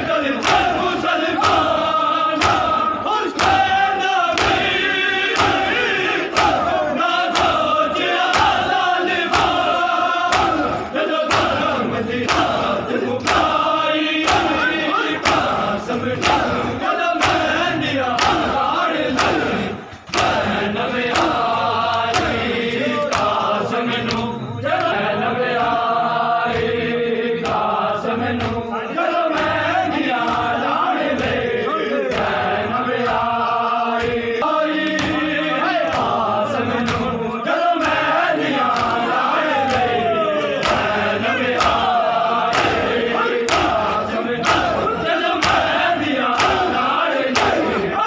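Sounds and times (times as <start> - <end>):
men chanting a lament: 0.0 - 48.0
hands slapping bare chests: 1.4 - 3.7, 4.3 - 5.7, 6.3 - 7.7, 10.3 - 13.6, 15.2 - 15.6, 17.2 - 17.6, 18.2 - 20.4, 40.6 - 41.0, 41.6 - 45.8.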